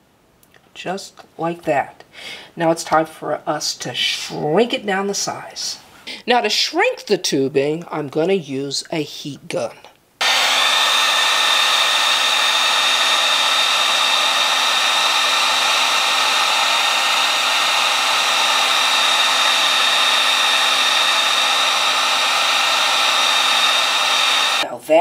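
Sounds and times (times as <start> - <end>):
heat gun blowing air with whine: 10.2 - 24.7.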